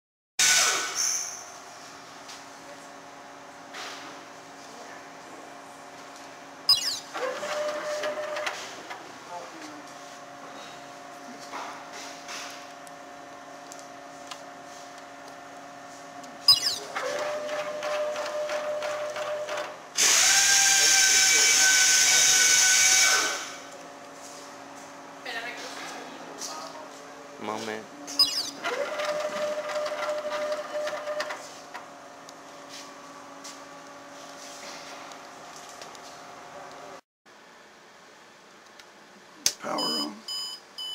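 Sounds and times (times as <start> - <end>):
motor whine with rapid ticking: 12.6 - 24.2, 28.1 - 32.4
embroidery machine humming: 22.4 - 34.0.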